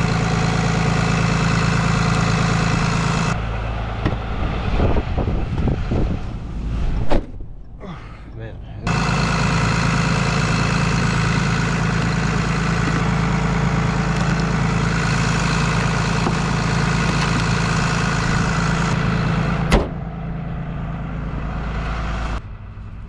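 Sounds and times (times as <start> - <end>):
vehicle engine idling: 0.0 - 23.0
car door slamming: 7.0 - 7.5, 19.7 - 20.0.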